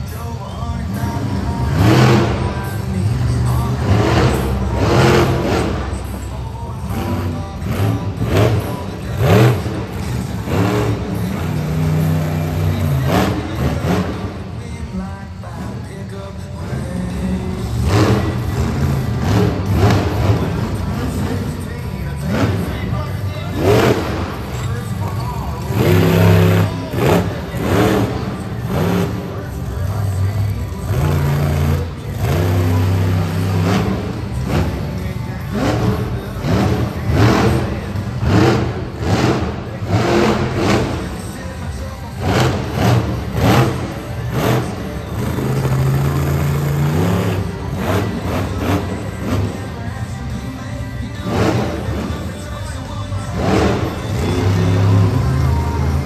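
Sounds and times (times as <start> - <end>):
monster truck engine revving: 0.0 - 56.0.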